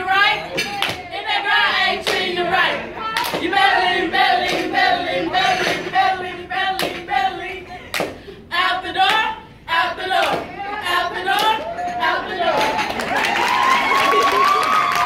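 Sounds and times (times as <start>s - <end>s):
group of people singing: 0.0s - 13.1s
hand claps: 3.2s - 3.5s.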